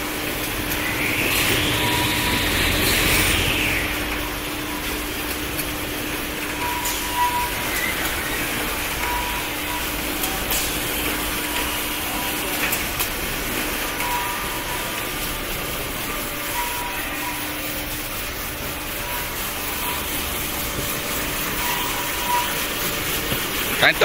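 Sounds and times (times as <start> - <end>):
band saw machine din: 0.0 - 24.0
short machine whines: 0.4 - 5.3, 13.3 - 24.0.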